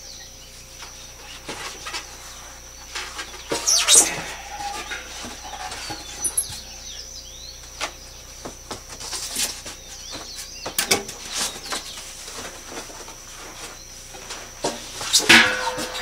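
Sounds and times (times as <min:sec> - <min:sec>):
faint birds chirping: 0:00.0 - 0:16.0
cardboard box rustling and scraping: 0:03.0 - 0:07.0.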